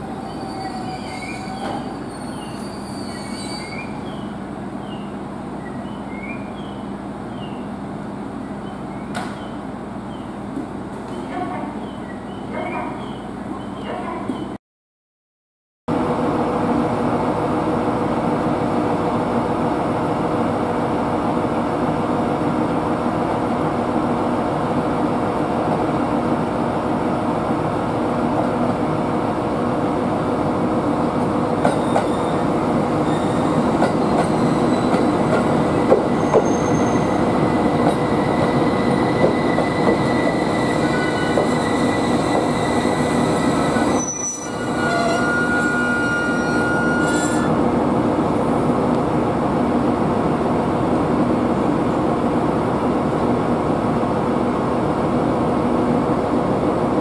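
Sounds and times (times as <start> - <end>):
high-pitched brake squeals: 0.0 - 4.0, 31.8 - 35.1, 36.1 - 37.3, 38.0 - 47.5.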